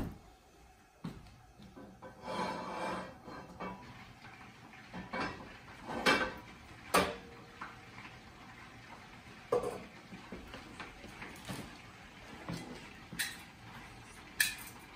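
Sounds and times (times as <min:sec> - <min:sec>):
skillet clanking on iron grates: 0:01.8 - 0:04.0, 0:04.9 - 0:07.8, 0:09.5 - 0:10.0, 0:12.5 - 0:13.7, 0:14.3 - 0:14.9.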